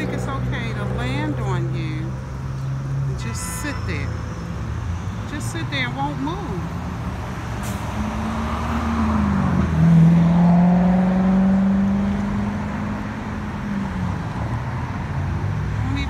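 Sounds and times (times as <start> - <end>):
low traffic rumble: 0.0 - 16.0
vehicle engine hum: 0.0 - 16.0.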